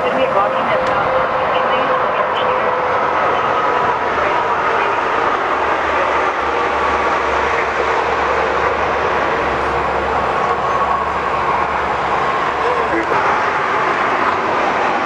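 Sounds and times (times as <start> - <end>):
loud vehicle noise: 0.0 - 15.0.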